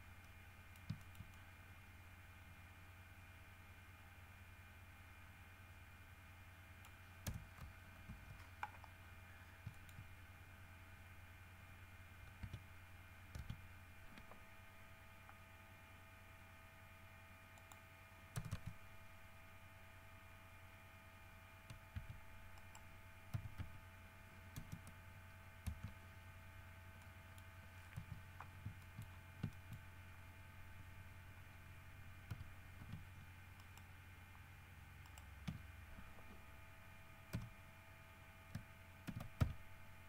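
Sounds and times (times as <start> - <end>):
faint constant whining tones: 0.0 - 40.0
steady electrical hum: 0.0 - 40.0
mouse and keyboard clicks: 0.7 - 1.4, 6.8 - 9.0, 9.6 - 10.1, 12.3 - 12.6, 13.3 - 14.4, 18.4 - 18.8, 27.0 - 29.8, 38.5 - 39.6.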